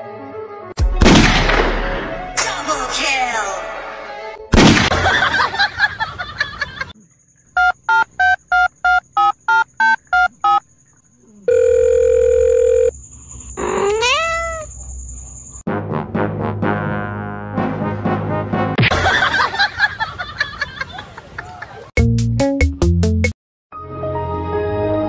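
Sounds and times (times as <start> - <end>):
music: 0.0 - 4.6, 15.7 - 18.9, 22.0 - 25.0.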